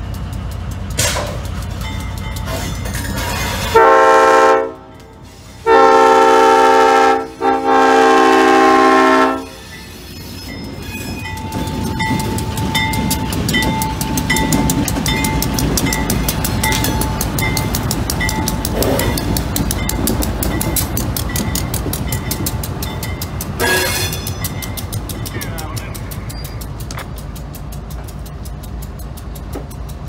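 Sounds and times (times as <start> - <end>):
locomotive rumbling past: 0.0 - 30.0
locomotive air horn blasts: 3.7 - 4.9, 5.6 - 9.6
bell ringing steadily: 9.4 - 30.0.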